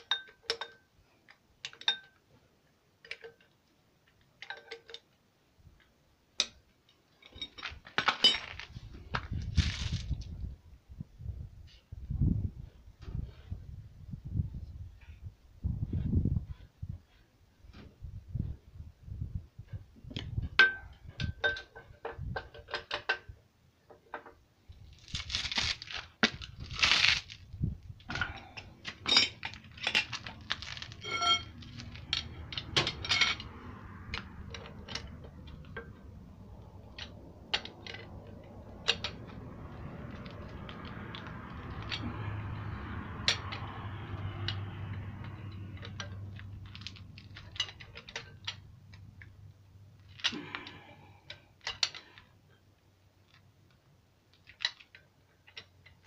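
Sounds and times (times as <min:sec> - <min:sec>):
metal tools clinking: 0:07.2 - 0:08.7, 0:28.1 - 0:36.1
short metallic rings: 0:29.0 - 0:33.6.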